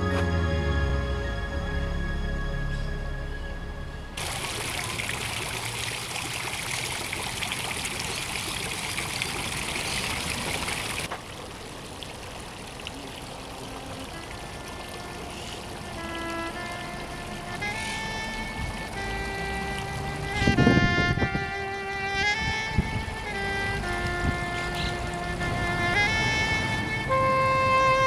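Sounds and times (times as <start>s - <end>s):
background music: 0.0s - 4.2s, 15.8s - 28.0s
quiet water rushing: 0.0s - 28.0s
fountain water splashing into basin: 4.2s - 28.0s.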